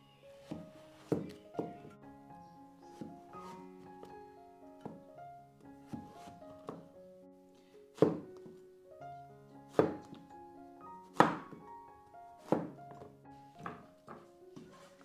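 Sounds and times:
piano music: 0.0 - 15.0
cleaver chopping on wooden board: 8.0 - 8.2, 9.8 - 10.1, 11.2 - 11.6.

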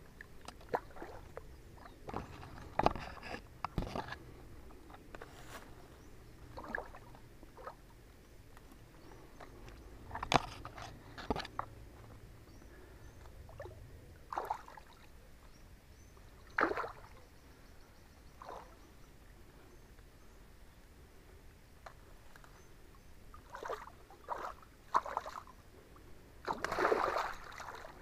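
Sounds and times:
shallow water splashing: 0.2 - 4.0, 6.5 - 7.9, 13.5 - 15.1, 16.4 - 17.2, 18.4 - 18.8, 23.3 - 25.6, 26.4 - 28.0.

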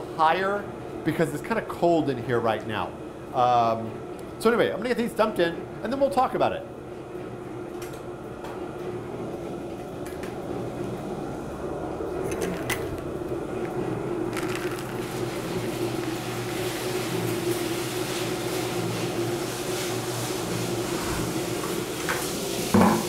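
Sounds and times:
drum roaster humming: 0.0 - 23.0
beans pouring into rotating drum: 14.3 - 20.9.

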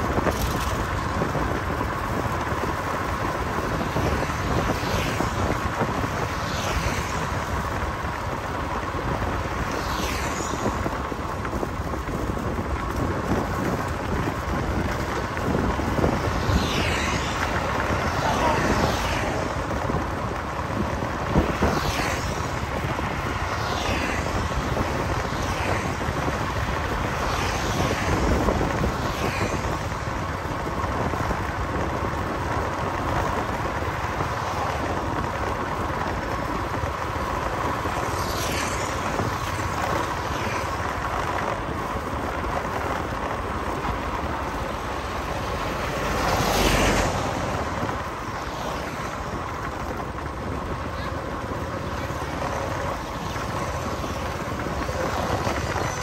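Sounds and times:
vehicle road and wind noise: 0.0 - 56.0
vehicles passing by: 0.0 - 56.0.

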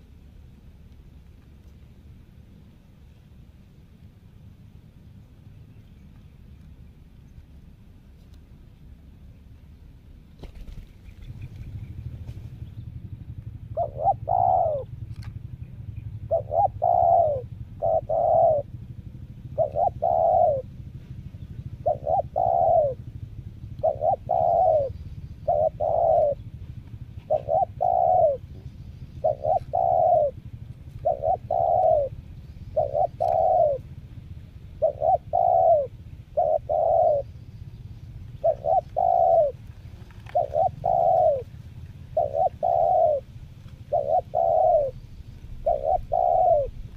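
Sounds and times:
dove cooing: 10.4 - 46.9.

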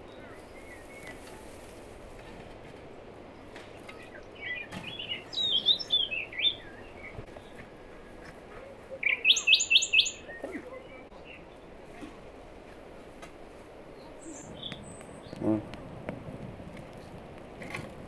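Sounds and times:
songbirds singing: 0.0 - 11.9, 13.8 - 15.8.

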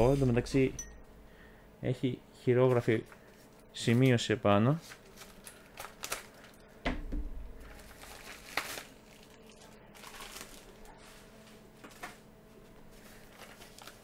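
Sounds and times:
plastic packing crinkling: 4.8 - 6.7, 7.6 - 11.0, 12.9 - 14.0.

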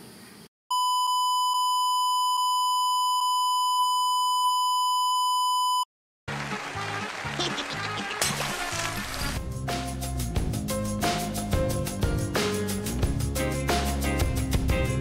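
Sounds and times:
music: 6.3 - 15.0.

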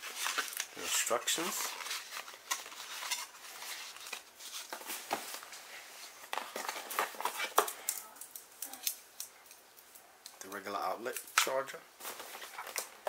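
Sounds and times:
paper and cardboard rustling: 0.0 - 7.8, 11.4 - 13.0.

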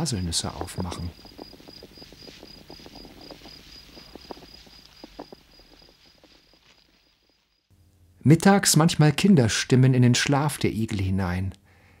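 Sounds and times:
cricket chirping: 0.0 - 7.7
small clicks and crackles: 0.4 - 7.5.

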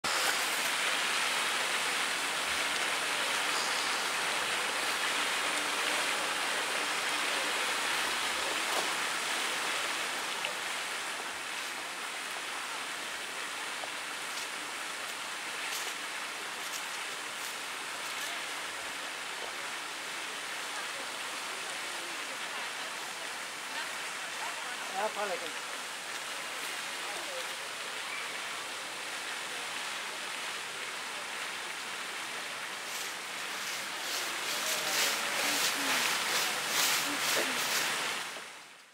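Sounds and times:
fountain water splashing: 0.0 - 38.9.

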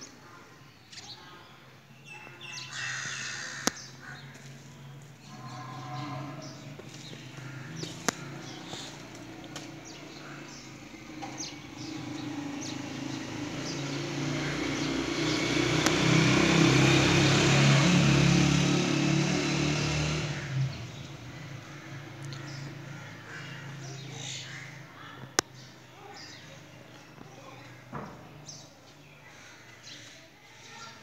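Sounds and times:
vehicle engine passing by: 2.9 - 25.1.

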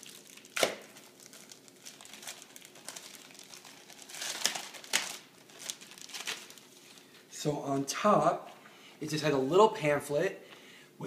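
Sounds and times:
plastic packaging crinkling: 0.0 - 7.3.

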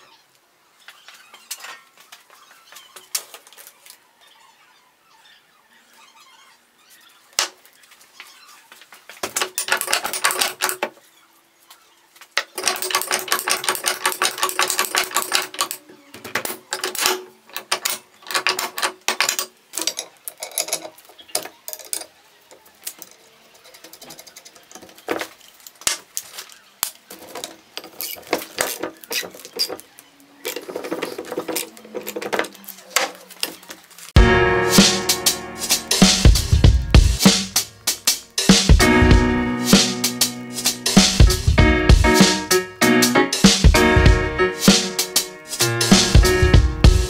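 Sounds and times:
jack pins clicking: 9.2 - 10.9, 12.4 - 22.2
metal clacks and knocks: 9.2 - 10.9, 12.4 - 22.1.

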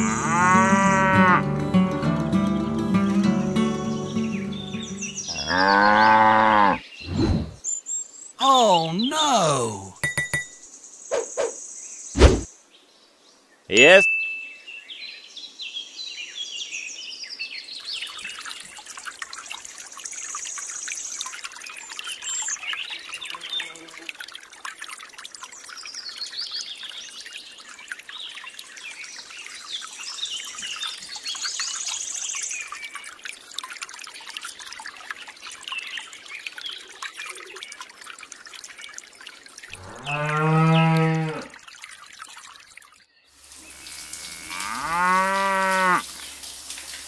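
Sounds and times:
cow mooing: 0.0 - 1.4, 5.3 - 6.8, 39.8 - 41.5, 43.8 - 46.0
birds chirping: 3.8 - 7.8
water pouring from a hose: 17.7 - 47.0.

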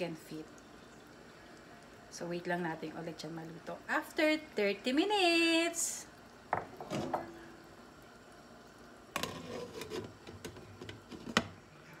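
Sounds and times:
lid clattering and clinking: 9.2 - 11.5.

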